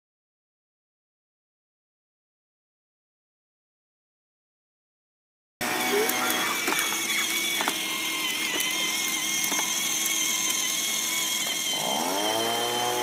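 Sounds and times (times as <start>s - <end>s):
electric toy motor whining: 5.6s - 13.0s.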